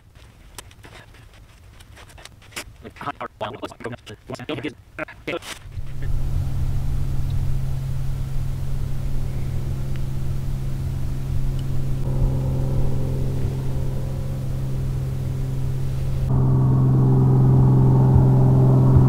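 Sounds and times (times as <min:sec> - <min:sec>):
truck engine running: 0:05.8 - 0:19.0.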